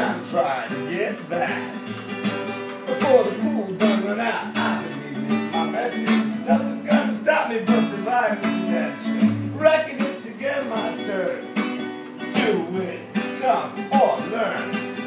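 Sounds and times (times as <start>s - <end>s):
classical guitar strumming: 0.0s - 15.0s
stringed instruments playing: 0.0s - 15.0s.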